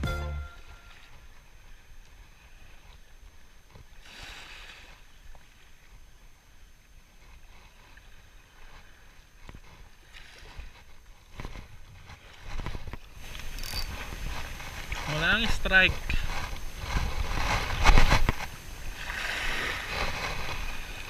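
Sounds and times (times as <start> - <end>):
gentle wind: 0.0 - 21.0
small waves lapping: 0.4 - 21.0
wind rumble on microphone: 7.0 - 21.0.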